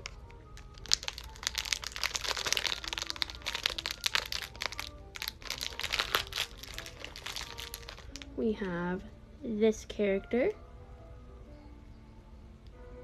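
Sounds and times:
plastic wrapper crackling: 0.0s - 8.7s.

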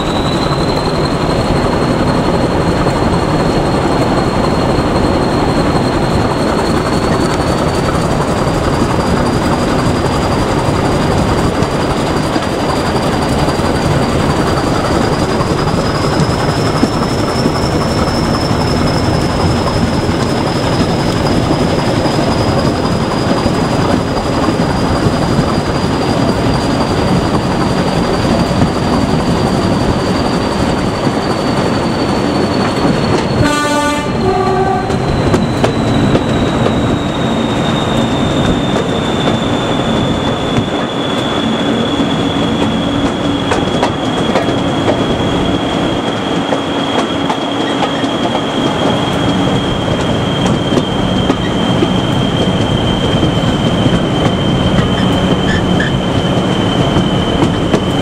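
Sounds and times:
turbocharger whistle: 0.0s - 10.8s, 11.4s - 58.0s
diesel locomotive engine drone: 0.0s - 58.0s
train wheels on track: 0.0s - 58.0s
train horn blast: 33.4s - 35.1s.

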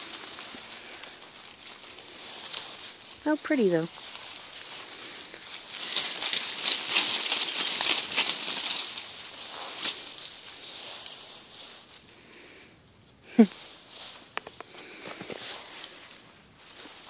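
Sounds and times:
dry leaves falling and rustling: 0.0s - 12.6s, 13.3s - 17.0s.

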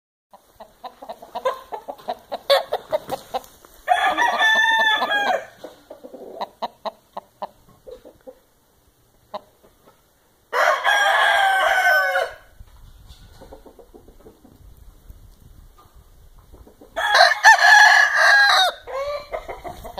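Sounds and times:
rooster clucking: 0.3s - 8.6s, 9.3s - 10.0s, 13.2s - 14.6s, 16.5s - 19.9s
rooster crowing: 3.8s - 5.6s, 10.5s - 12.5s, 17.0s - 19.7s.

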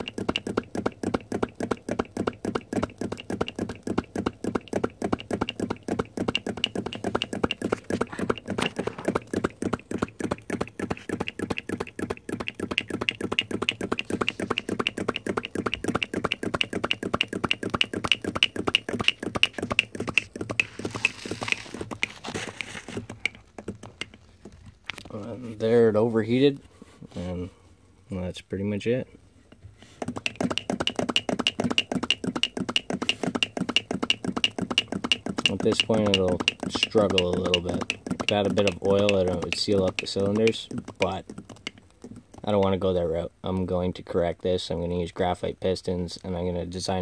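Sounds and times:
small engine fast ticking: 0.0s - 23.8s, 30.0s - 42.4s.

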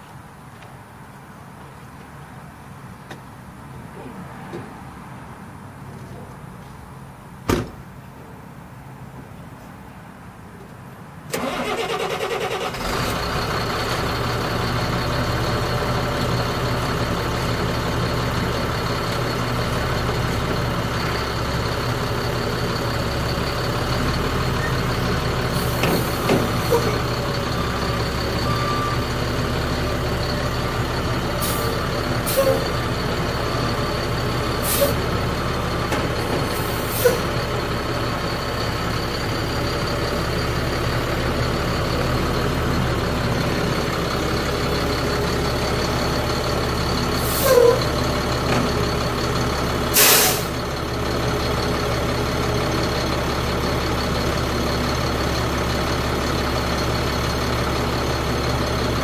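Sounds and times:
diesel truck engine idling: 11.3s - 59.0s
air brake hisses: 32.3s - 32.6s, 34.6s - 35.0s, 36.6s - 37.2s, 47.2s - 47.8s, 50.0s - 50.6s.

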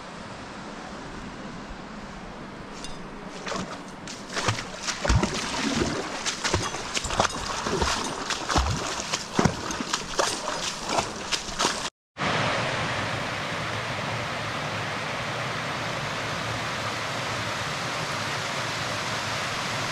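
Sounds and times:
stream water splashing: 2.6s - 11.9s
creek cascading over ledges: 2.8s - 13.4s.

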